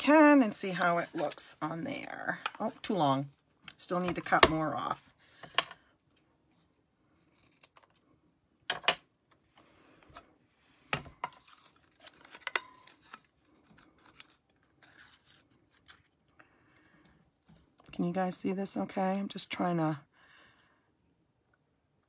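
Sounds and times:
paper and plastic rustling: 0:11.2 - 0:16.2.

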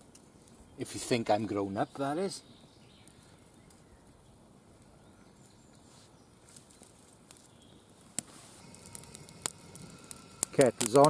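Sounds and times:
faint outdoor hiss: 0:00.0 - 0:11.0
faint ticks: 0:08.2 - 0:11.0.

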